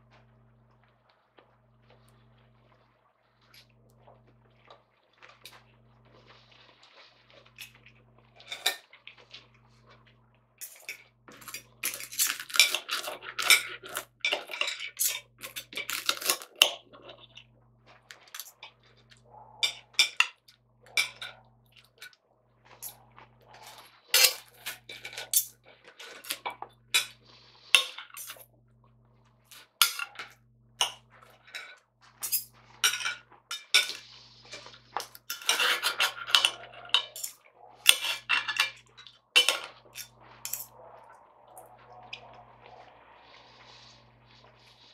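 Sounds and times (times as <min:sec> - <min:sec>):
cutlery clinking on a plate: 0:19.6 - 0:21.4, 0:29.8 - 0:34.0, 0:35.0 - 0:40.7.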